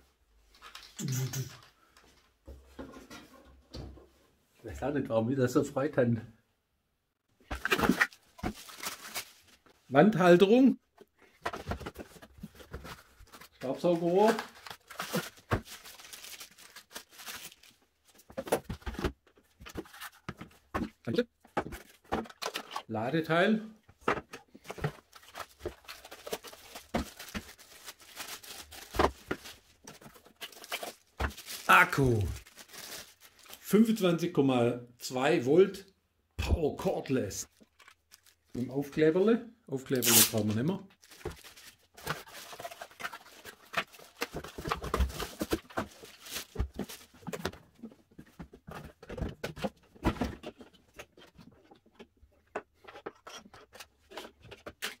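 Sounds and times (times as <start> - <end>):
plastic rustling: 7.6 - 9.7, 11.1 - 20.9, 23.9 - 33.7, 37.4 - 38.6, 40.0 - 52.0
cardboard scraping and rustling: 41.1 - 51.8.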